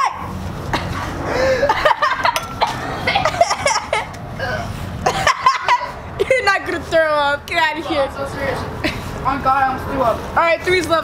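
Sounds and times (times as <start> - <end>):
boys laughing: 0.6 - 7.0, 7.8 - 9.8
boy coughing and gagging: 0.7 - 6.4.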